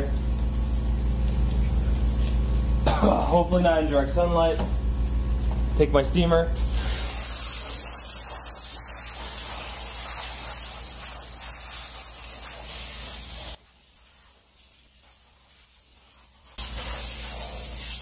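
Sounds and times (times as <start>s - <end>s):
steam hissing from wand: 6.1s - 18.0s.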